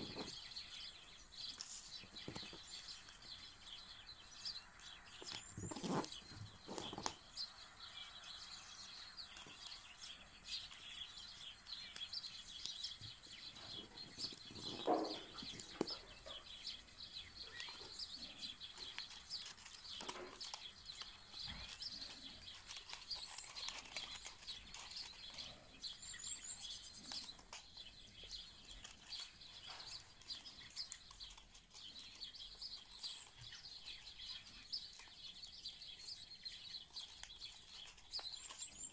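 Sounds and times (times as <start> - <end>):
stiff paper rustling: 0.0 - 3.4, 5.2 - 7.2, 17.4 - 34.0, 36.8 - 38.9
small birds chirping: 0.0 - 38.9.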